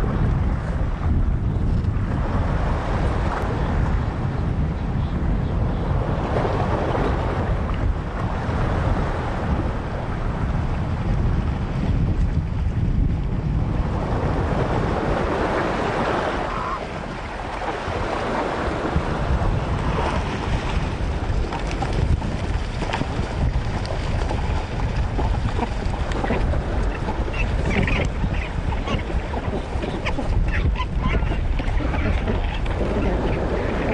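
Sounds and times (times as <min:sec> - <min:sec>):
wind buffeting microphone: 0:00.0 - 0:33.9
surf on rocky shore: 0:06.0 - 0:33.9
penguin calls: 0:26.2 - 0:33.9.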